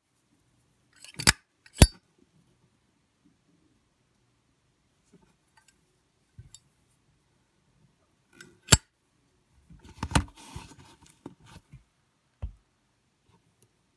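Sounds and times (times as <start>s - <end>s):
dull thump: 12.4s - 12.6s.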